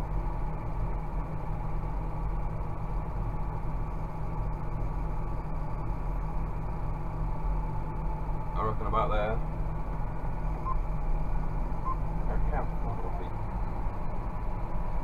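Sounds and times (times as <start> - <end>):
tractor diesel engine drone: 0.0 - 15.0.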